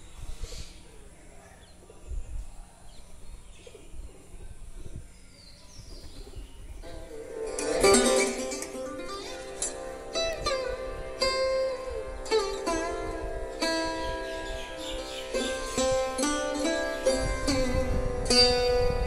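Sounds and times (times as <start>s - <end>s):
bird chirps: 0.0s - 6.9s
plucked string instrument: 6.8s - 19.0s.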